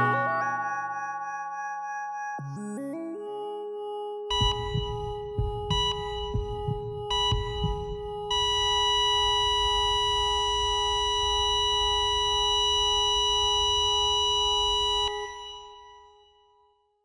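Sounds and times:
heart monitor flatline tone: 4.3s - 15.8s.

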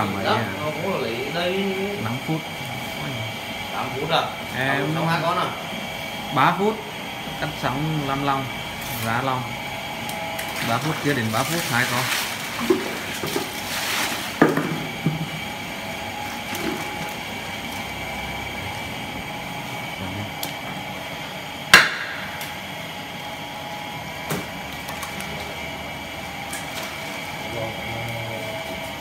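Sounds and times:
cleaver chopping knocks: 21.7s - 22.2s.

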